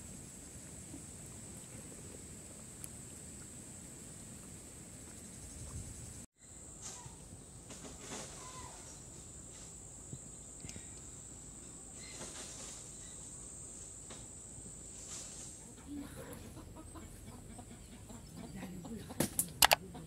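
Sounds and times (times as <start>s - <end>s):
short insect chirps: 0.0s - 7.6s, 8.4s - 15.5s
insects trilling: 0.0s - 19.1s.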